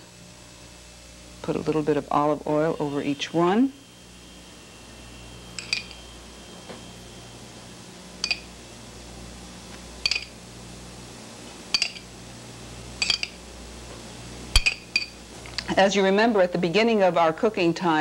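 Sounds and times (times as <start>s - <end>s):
steady low hum: 0.0s - 18.0s
metal spoon clinking glass: 5.6s - 6.0s, 8.2s - 8.5s, 10.0s - 10.4s, 11.7s - 12.1s, 13.0s - 13.4s, 14.6s - 15.2s.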